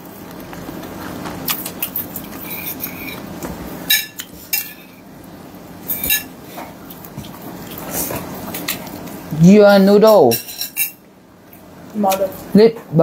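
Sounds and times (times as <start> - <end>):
low steady background noise: 0.0 - 13.0
cutlery clinking against a plate: 1.4 - 3.2, 3.9 - 5.0, 5.8 - 6.3, 10.1 - 11.0.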